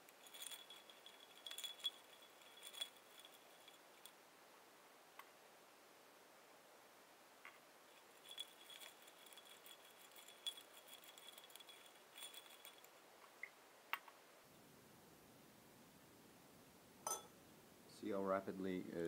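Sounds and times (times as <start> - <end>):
ice and rod clinking in glass: 0.0 - 4.1, 8.0 - 13.0.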